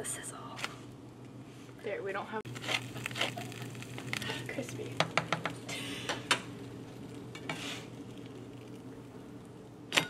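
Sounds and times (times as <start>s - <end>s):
quesadilla sizzling in pan: 2.5s - 10.0s
scraping in pan: 7.3s - 8.1s.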